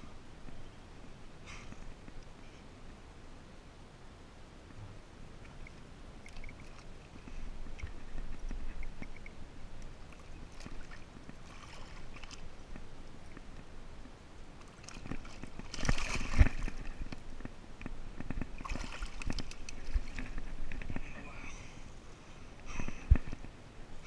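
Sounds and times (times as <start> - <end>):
water sloshing: 5.4 - 13.6, 14.6 - 17.4, 18.2 - 21.0
wet weeds rustling: 6.2 - 13.7, 14.4 - 17.5
splash and thump: 14.8 - 17.0, 18.6 - 20.2.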